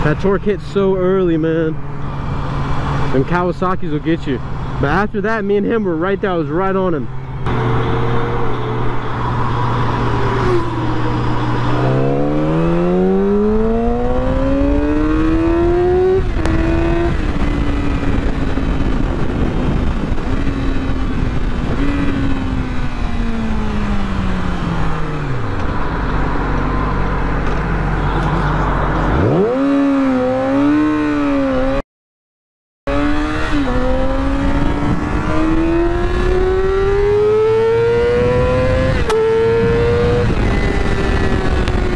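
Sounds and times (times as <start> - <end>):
motorcycle engine accelerating: 7.0 - 31.8, 32.9 - 41.9
wind noise on microphone: 7.3 - 31.8, 32.9 - 41.9.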